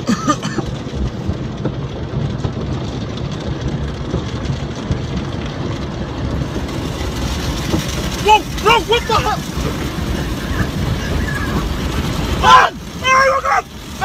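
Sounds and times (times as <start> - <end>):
car wash brushes rumbling: 0.0 - 14.0.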